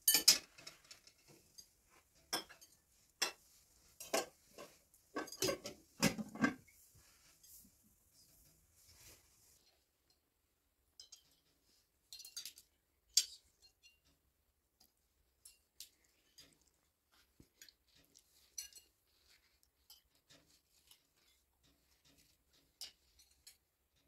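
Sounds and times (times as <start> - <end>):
spoons clinking on bowls: 0.0 - 1.0, 1.6 - 6.1, 11.0 - 11.5, 12.1 - 14.0, 17.5 - 23.7.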